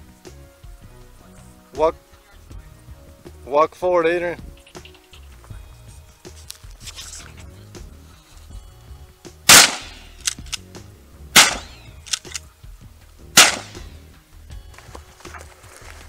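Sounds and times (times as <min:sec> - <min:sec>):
shotgun shots: 0:09.5 - 0:10.6, 0:11.4 - 0:12.4, 0:13.4 - 0:13.9
small clicks: 0:10.2 - 0:10.6, 0:12.0 - 0:12.4.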